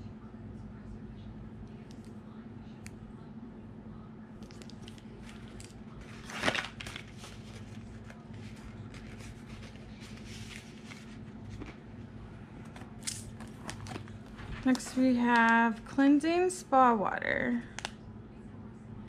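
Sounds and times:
packaging rustling and crinkling: 4.4s - 11.8s.

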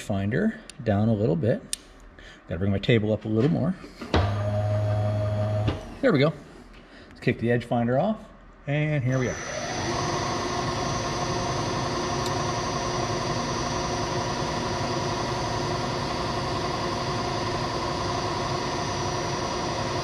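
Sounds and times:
milling machine motor hum: 4.2s - 6.0s, 9.2s - 20.0s
steady whining tones: 9.1s - 20.0s.

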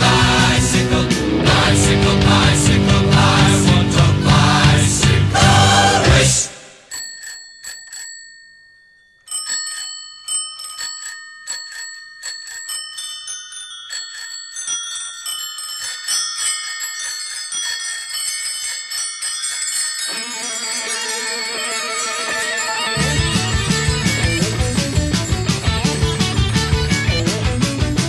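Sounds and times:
rock band music with guitar: 0.0s - 6.4s, 22.8s - 28.0s
bicycle bells ringing: 6.8s - 28.0s.

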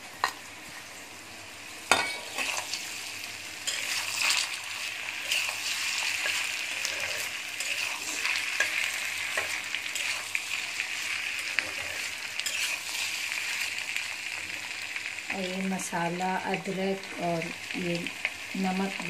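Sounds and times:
potatoes sizzling in oil: 0.0s - 19.0s
metal spatula scraping pan: 3.6s - 4.6s, 5.2s - 10.4s, 11.5s - 13.1s.

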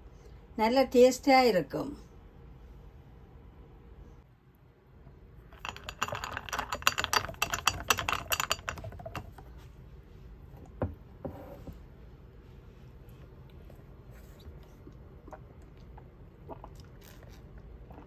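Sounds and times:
ice cubes clinking in glass: 5.6s - 9.3s.

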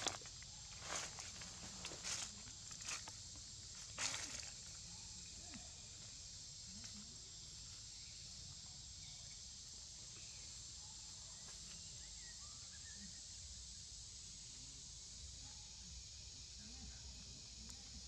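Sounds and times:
dry leaves crackling: 0.0s - 3.1s, 4.0s - 4.5s
high-pitched insect drone: 0.0s - 18.0s.

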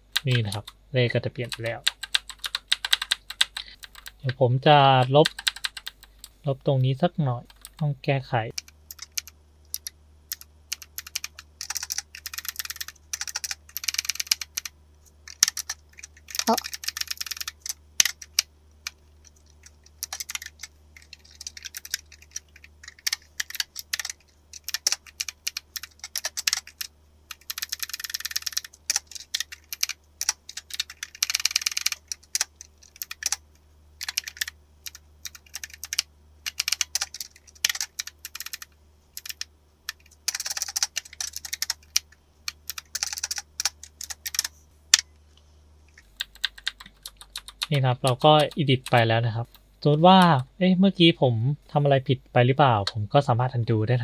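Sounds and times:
faint low hum: 0.0s - 54.0s
typing on computer keyboard: 1.4s - 4.3s, 5.2s - 6.3s, 8.5s - 33.4s, 34.0s - 44.5s, 46.0s - 49.0s.

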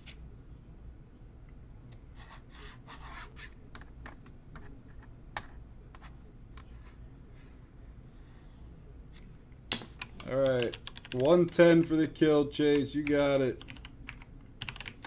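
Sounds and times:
keyboard clicks: 10.0s - 11.6s, 12.7s - 15.0s.

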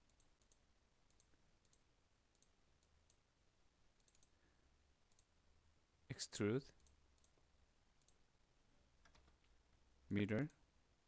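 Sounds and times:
faint computer mouse clicks: 0.0s - 3.2s, 4.0s - 4.4s, 5.1s - 5.3s, 6.8s - 7.4s, 8.0s - 8.2s.

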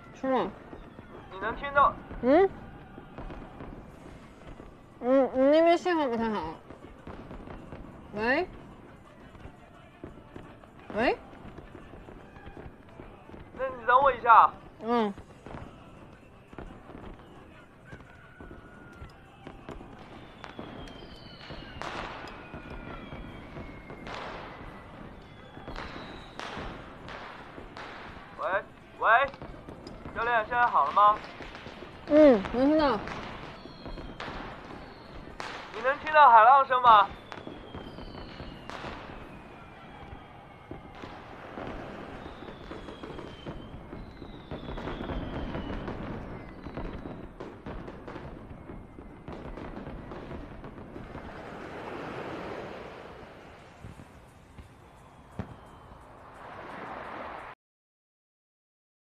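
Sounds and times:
firework bursts: 0.0s - 57.6s
fireworks popping and crackling: 0.0s - 57.6s
firework whistles sliding down: 17.9s - 28.3s, 33.0s - 35.9s, 37.0s - 57.6s.

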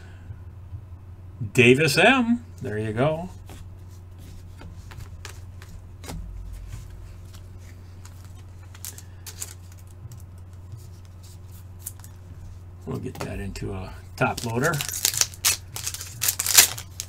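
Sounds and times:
steady low hum: 0.0s - 17.0s
cards clicking and tapping: 4.5s - 12.2s, 14.2s - 17.0s.

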